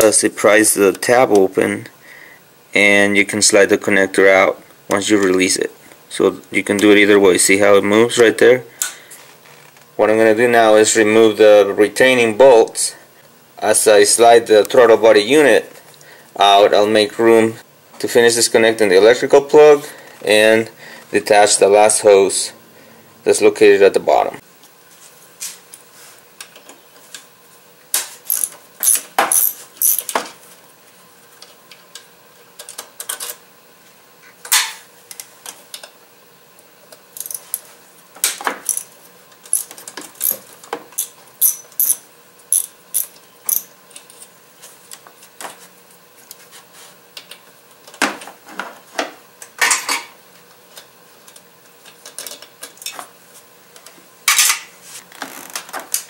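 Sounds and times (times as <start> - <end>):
ratchet wrench clicking: 28.3 - 30.1, 37.2 - 37.5, 41.0 - 43.7.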